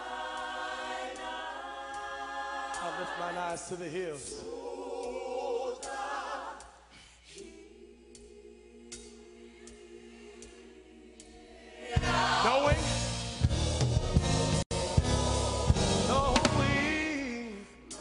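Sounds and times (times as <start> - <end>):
gospel choir singing: 0.0 - 18.0
band with heavy percussion: 12.0 - 17.1.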